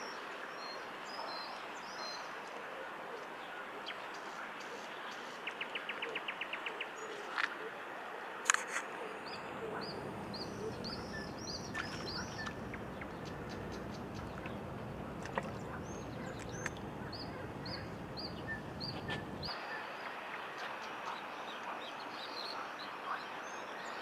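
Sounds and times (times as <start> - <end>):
steady outdoor hiss: 0.0 - 24.0
small bird chirping: 9.2 - 14.6.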